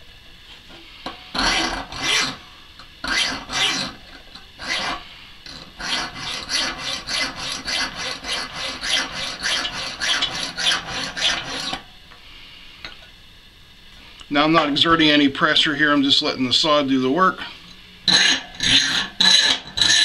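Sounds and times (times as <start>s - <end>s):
hacksaw rasping on metal: 1.4s - 2.4s, 3.0s - 11.8s, 18.1s - 20.0s.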